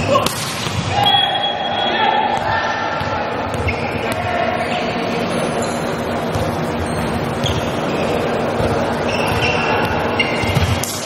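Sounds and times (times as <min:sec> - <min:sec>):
players shouting: 0:00.0 - 0:10.3
volleyball smack echoing: 0:00.1 - 0:01.3.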